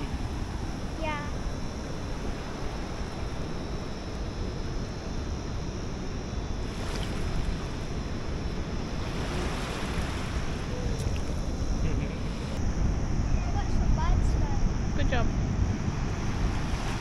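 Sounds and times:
wind buffeting microphone: 0:00.0 - 0:17.0
small waves washing onto sand: 0:01.8 - 0:12.6, 0:15.7 - 0:17.0.

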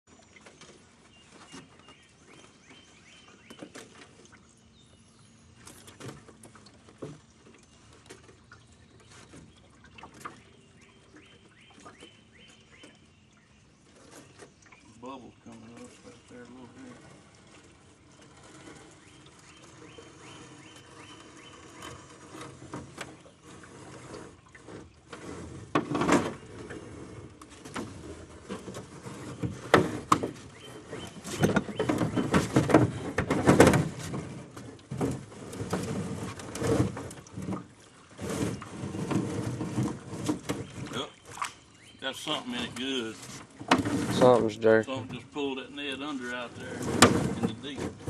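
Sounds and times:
rope and net rattling on boat: 0:00.1 - 0:04.4, 0:05.5 - 0:13.0, 0:13.8 - 0:48.0
water splashing: 0:05.5 - 0:48.0.

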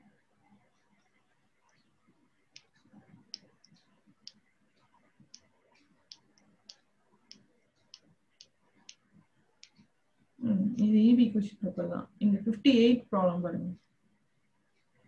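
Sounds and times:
computer mouse clicks: 0:02.5 - 0:09.9.

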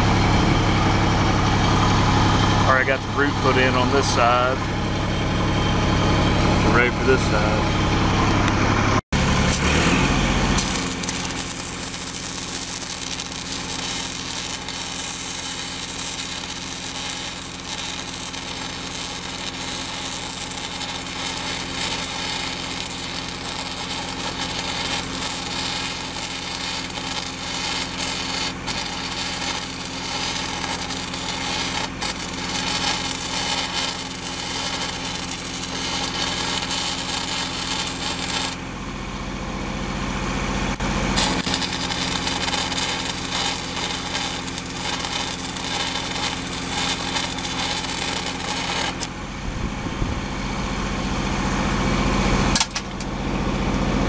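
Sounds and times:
welding arc crackling and hissing: 0:09.3 - 0:38.6, 0:40.7 - 0:49.1.

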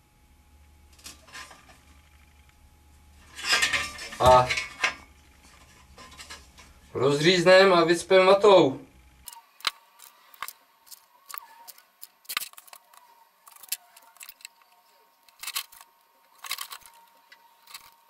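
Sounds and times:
metal strip being unwrapped: 0:00.9 - 0:01.8, 0:03.2 - 0:06.7, 0:09.3 - 0:18.0
steel bottle turned on metal bench: 0:03.2 - 0:06.6.

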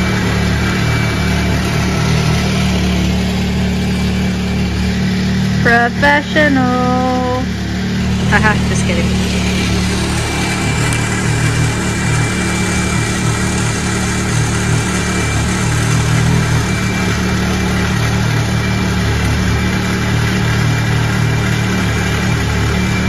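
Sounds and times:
engine idling: 0:00.0 - 0:23.0
faint high-pitched tone: 0:05.7 - 0:07.6.

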